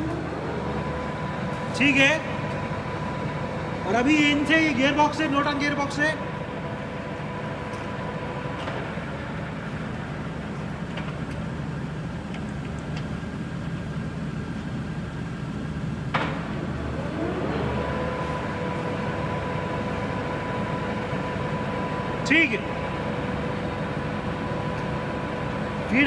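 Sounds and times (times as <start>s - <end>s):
lathe humming and whining: 0.0s - 26.0s.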